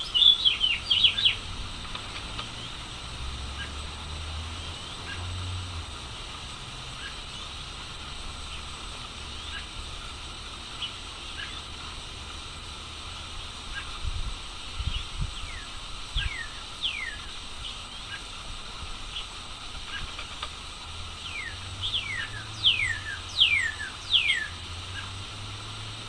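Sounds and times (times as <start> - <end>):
bird whistles: 21.3 - 24.6.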